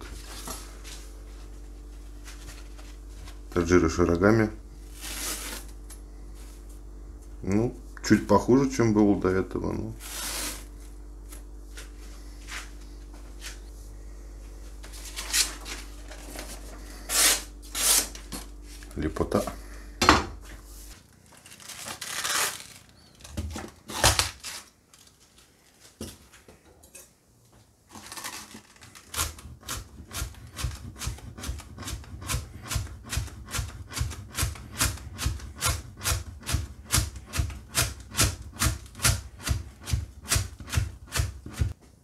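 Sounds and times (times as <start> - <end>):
knife chopping cabbage on board: 29.2 - 41.8.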